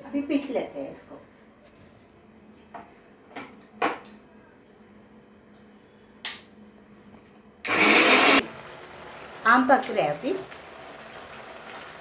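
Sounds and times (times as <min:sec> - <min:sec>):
grinder motor running: 0:07.7 - 0:08.5.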